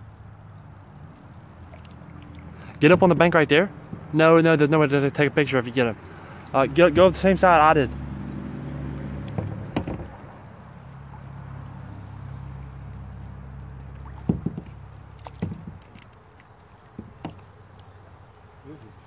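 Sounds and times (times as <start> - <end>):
low mechanical hum: 0.0 - 19.0
paddle knocks and splashes: 2.8 - 4.2, 9.3 - 10.4, 13.9 - 16.2, 16.9 - 17.6.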